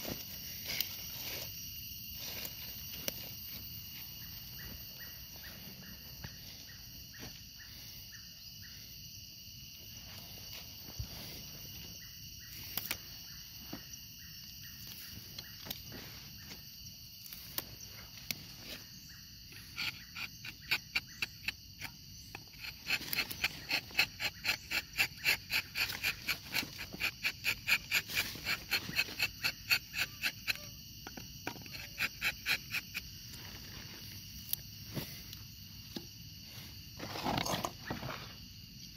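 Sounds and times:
insects buzzing: 0.0 - 38.9
rapid chirping call: 4.0 - 8.9, 18.8 - 30.8.

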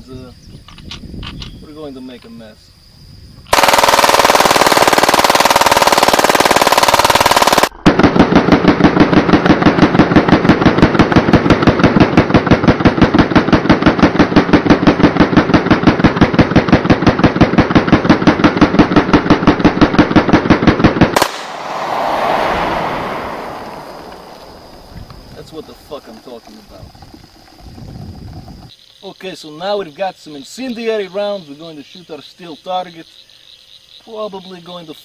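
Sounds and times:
automatic pistol firing: 3.5 - 7.7, 21.2 - 24.9.

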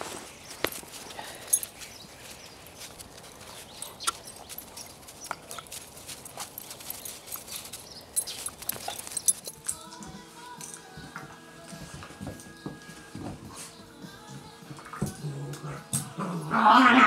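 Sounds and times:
dog paws crunching in snow: 0.0 - 11.0.

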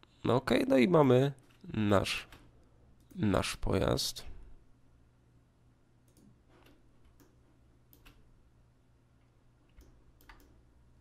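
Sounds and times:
computer mouse clicks: 6.1 - 8.3, 9.7 - 10.6.

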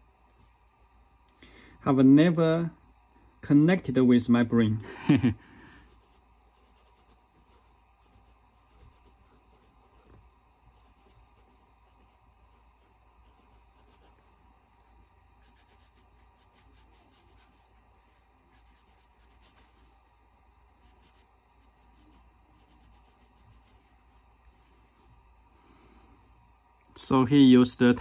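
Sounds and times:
pen nib scratching paper: 5.8 - 20.0, 20.6 - 24.4.

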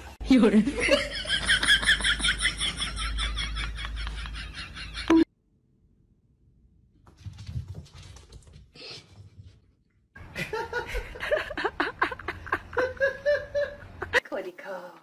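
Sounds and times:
man laughing hard: 10.3 - 14.1.

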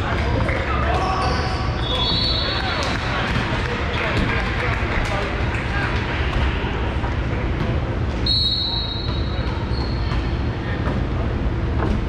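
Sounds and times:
gym background noise: 0.0 - 12.0
referee's whistle blast: 8.2 - 9.3.

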